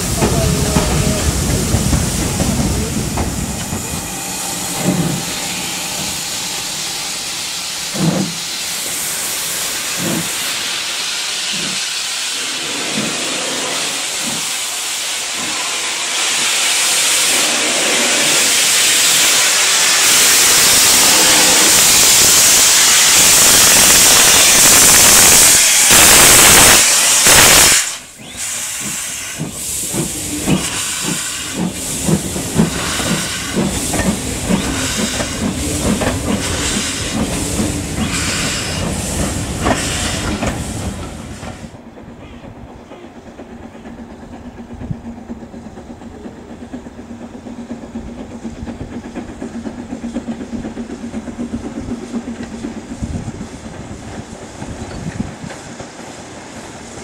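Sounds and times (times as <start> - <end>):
distant train running: 0.0 - 57.0
steam hissing from locomotive: 0.0 - 57.0.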